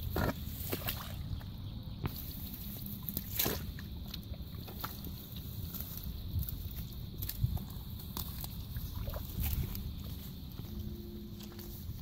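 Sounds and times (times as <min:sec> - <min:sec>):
hands squelching through wet mud: 0:00.0 - 0:12.0
wet splats: 0:03.1 - 0:04.2.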